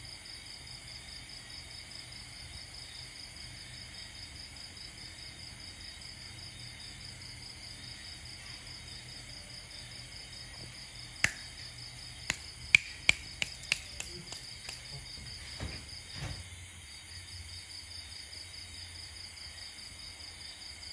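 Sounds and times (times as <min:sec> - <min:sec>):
crickets chirping: 0:00.0 - 0:20.9
gecko chirping clicks: 0:11.2 - 0:15.0.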